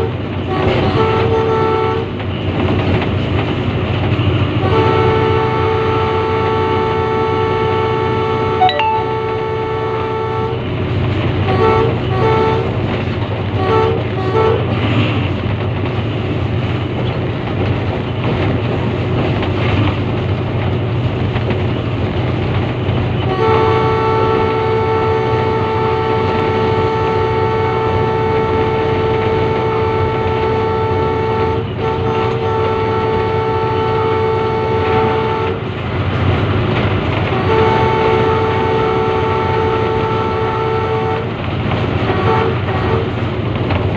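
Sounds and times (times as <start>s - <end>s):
locomotive horn blowing: 0.0s - 2.2s, 4.6s - 10.7s, 11.4s - 12.8s, 13.5s - 14.8s, 23.2s - 35.7s, 37.2s - 41.3s, 42.0s - 43.2s
train rumble: 0.0s - 43.9s.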